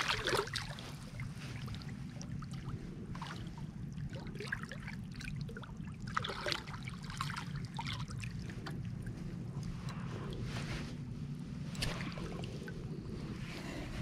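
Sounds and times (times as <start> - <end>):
steady low rumble: 0.0 - 14.0
river water splashing: 11.7 - 12.6.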